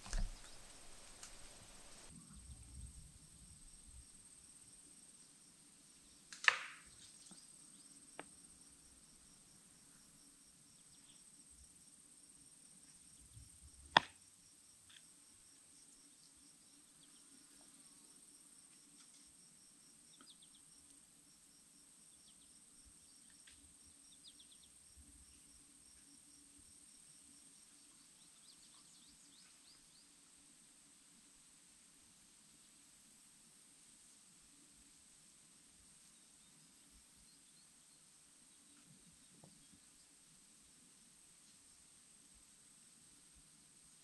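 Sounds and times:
crickets chirping: 0.0 - 44.0
sharp click: 6.3 - 6.8.

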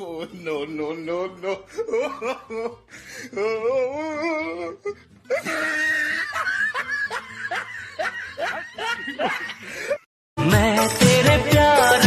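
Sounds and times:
person laughing: 1.3 - 10.1
music: 2.4 - 12.0
short falling laugh-like cries: 3.4 - 10.0.

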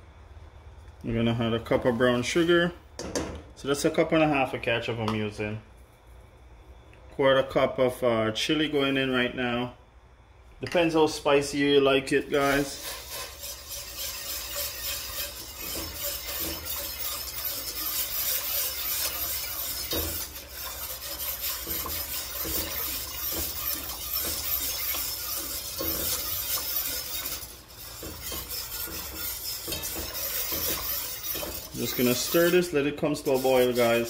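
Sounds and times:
whisk scraping metal pot: 12.0 - 34.0.

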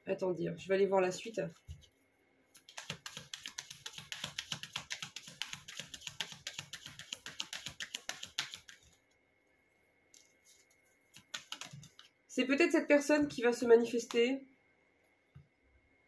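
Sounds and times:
cards being shuffled: 2.6 - 9.0, 10.2 - 12.1.

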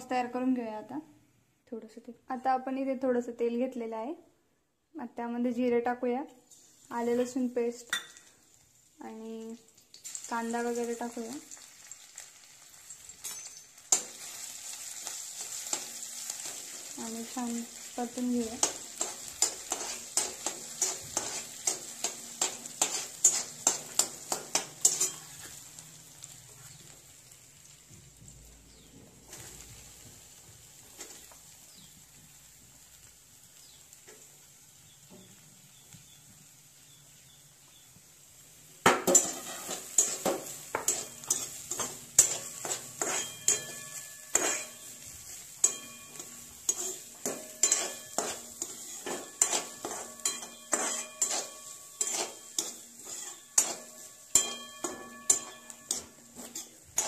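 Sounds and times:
food sizzling in oil: 5.8 - 57.0
metal spoon scraping a pan: 13.0 - 26.9, 30.8 - 31.8, 38.9 - 57.0.

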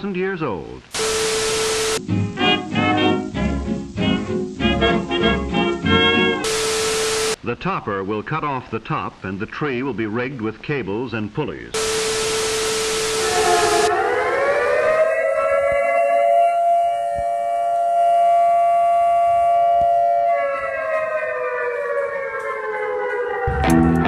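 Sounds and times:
tv static hiss: 0.0 - 14.8
siren winding up and down: 1.0 - 2.0, 6.4 - 7.4, 11.8 - 24.0.

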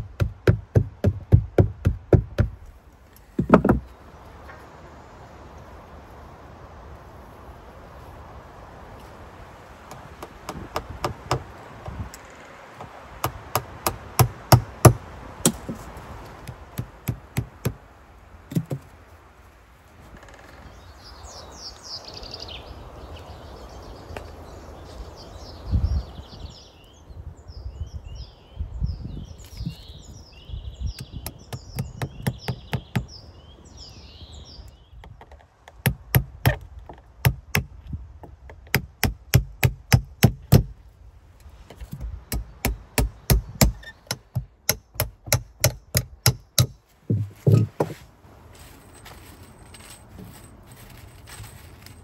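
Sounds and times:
tool knocking on logs: 0.0 - 2.7, 3.3 - 3.9, 9.9 - 12.0, 12.8 - 15.8, 16.4 - 17.8, 18.5 - 18.9, 31.0 - 33.1, 35.0 - 40.7, 41.7 - 48.0
small birds chirping: 20.4 - 36.6.

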